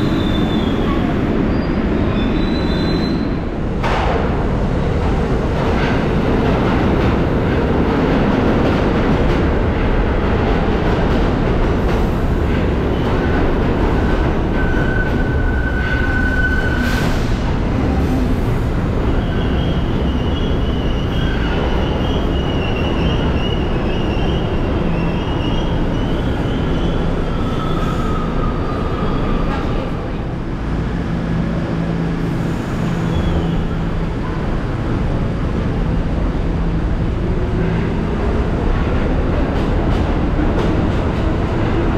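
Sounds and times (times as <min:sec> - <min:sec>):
high wheel squeal: 0:00.0 - 0:03.4, 0:14.6 - 0:17.4, 0:19.1 - 0:29.7
train wheels rumbling on rail: 0:00.0 - 0:41.9.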